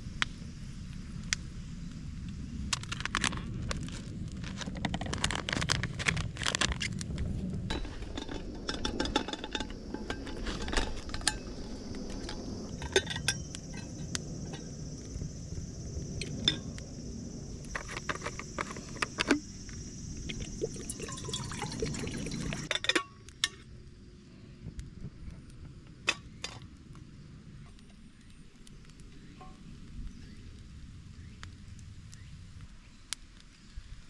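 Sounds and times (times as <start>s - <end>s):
light metal clinks: 12.7s - 14.8s, 20.3s - 23.6s
water pouring into metal kettle: 20.3s - 22.7s.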